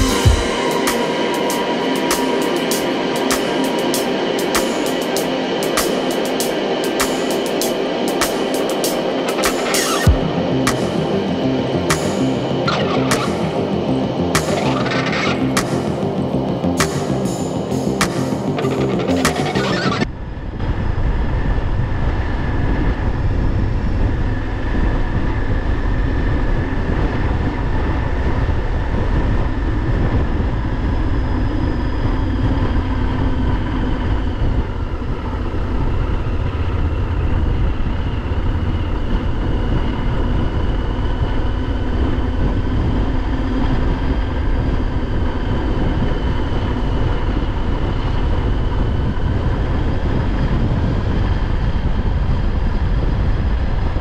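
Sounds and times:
motorcycle engine cruising: 8.9s - 20.1s
wind rush on microphone: 20.0s - 54.0s.

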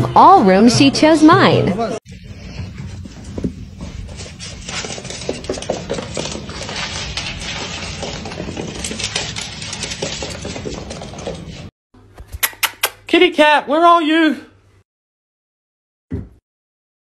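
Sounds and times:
pet claws on hardwood floor: 3.4s - 11.7s.

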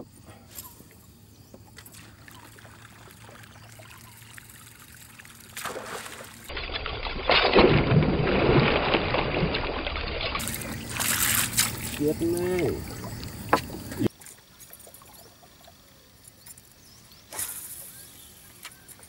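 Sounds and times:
faint trickling water: 1.6s - 6.5s, 10.4s - 16.9s
fish splashing at water surface: 1.8s - 6.6s, 7.2s - 14.3s.

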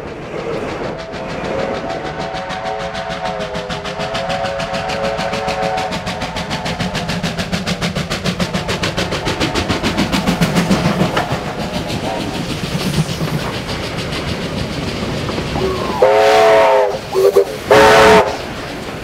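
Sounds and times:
steam locomotive chugging: 0.0s - 19.0s
steam whistle blasts: 1.9s - 6.3s, 15.6s - 18.5s.

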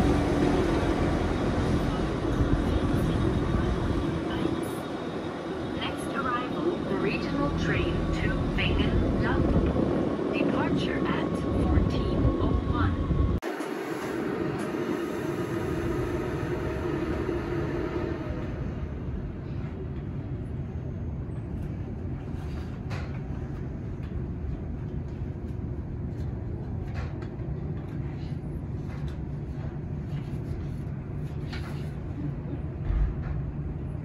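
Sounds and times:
train rumbling: 0.0s - 34.0s.

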